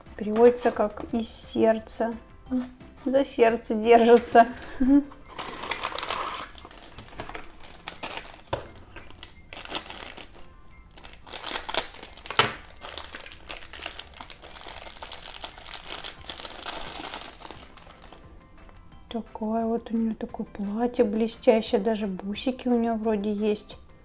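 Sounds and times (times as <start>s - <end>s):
plastic bag crinkling: 4.1s - 18.2s
cardboard box opening: 5.3s - 9.2s.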